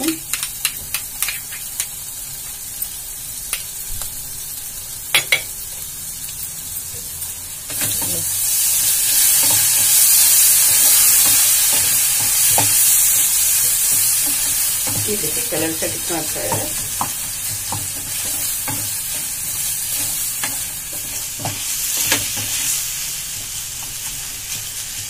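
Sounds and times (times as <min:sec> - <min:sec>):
vegetables sizzling in a pan: 0:00.0 - 0:25.0
wooden spatula stirring in pan: 0:09.0 - 0:25.0.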